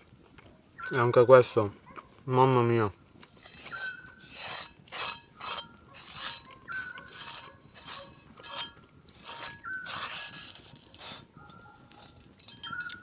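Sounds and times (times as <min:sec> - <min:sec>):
crunchy chewing: 0:01.7 - 0:02.3, 0:03.1 - 0:13.0.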